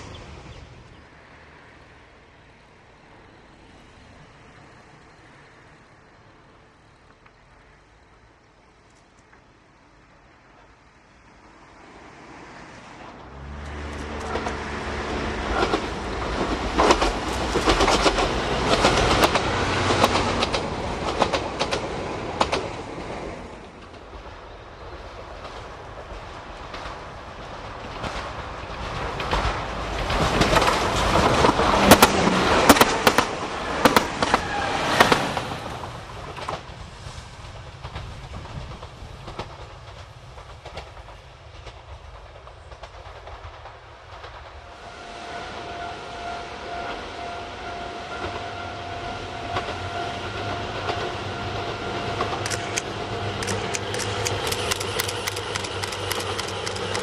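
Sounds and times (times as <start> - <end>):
diesel engine drone: 13.1 - 20.4, 44.6 - 57.0
train wheels clacking: 13.9 - 24.2, 25.1 - 44.8, 46.8 - 57.0.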